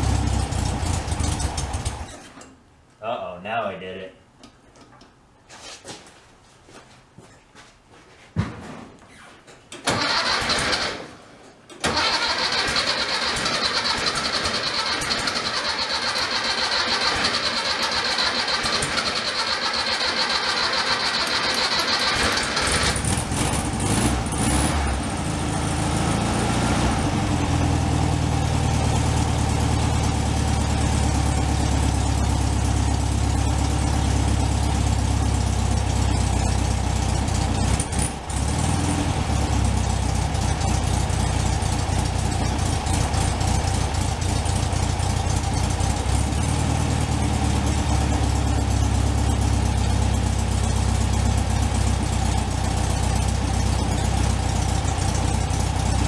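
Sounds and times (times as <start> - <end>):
starter cranking engine: 9.8 - 11.0, 11.8 - 24.6
car engine revving and idling: 12.2 - 56.0.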